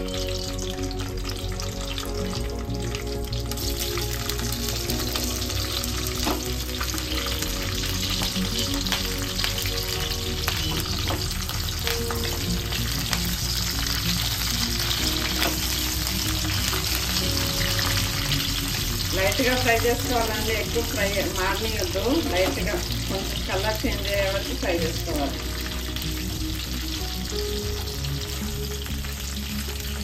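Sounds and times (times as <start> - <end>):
chillies sizzling in hot oil: 0.0 - 30.0.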